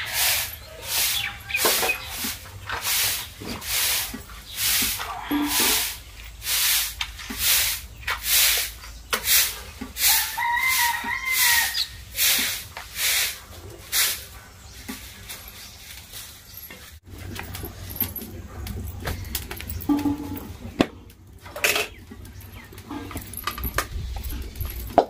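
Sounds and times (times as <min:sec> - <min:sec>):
bird calling: 0:00.0 - 0:03.6.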